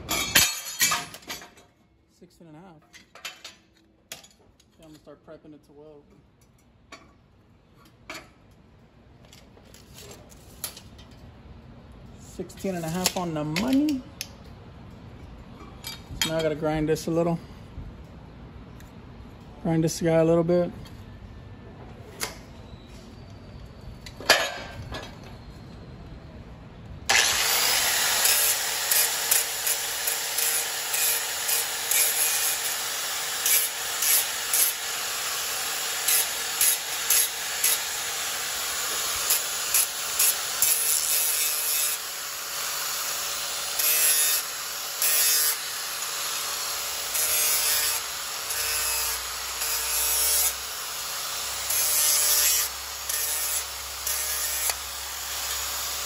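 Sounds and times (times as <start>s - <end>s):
angle grinder grinding metal: 27.1s - 56.0s.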